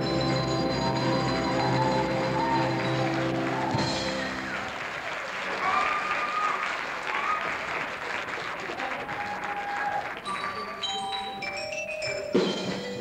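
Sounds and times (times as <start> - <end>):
xylophone notes: 0.0 - 4.4, 10.2 - 13.0
audience applause: 0.0 - 11.4.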